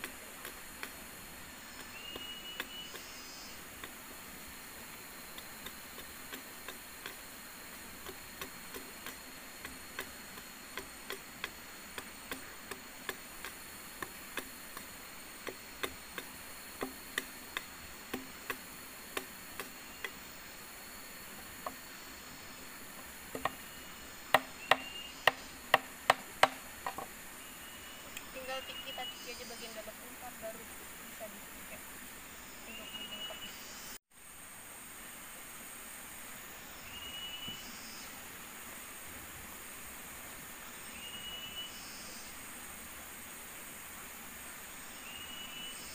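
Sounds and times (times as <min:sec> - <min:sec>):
machete chopping bamboo: 0:00.0 - 0:01.1, 0:01.7 - 0:03.1, 0:03.8 - 0:04.1, 0:05.3 - 0:20.2, 0:23.3 - 0:23.6, 0:24.3 - 0:27.1
high insect buzz: 0:00.0 - 0:45.9.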